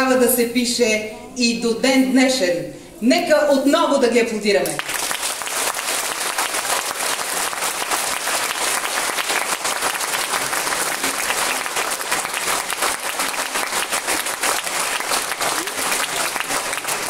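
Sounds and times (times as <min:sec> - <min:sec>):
audience clapping: 0:04.7 - 0:17.0.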